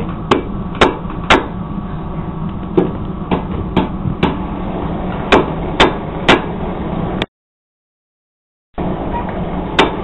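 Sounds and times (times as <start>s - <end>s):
low steady hum: 0.0s - 7.3s, 8.8s - 10.0s
hammer striking metal bar: 0.3s - 1.6s, 5.3s - 6.6s, 9.8s - 10.0s.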